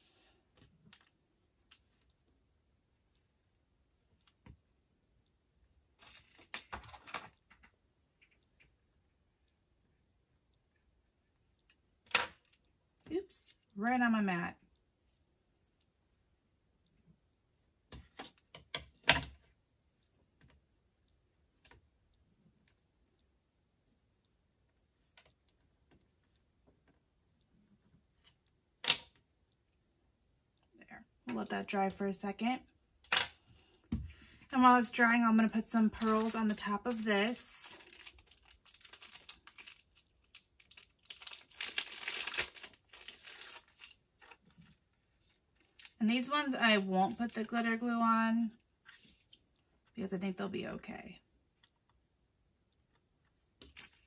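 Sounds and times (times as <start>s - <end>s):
plastic packaging crinkling: 35.9s - 44.8s, 47.0s - 47.7s.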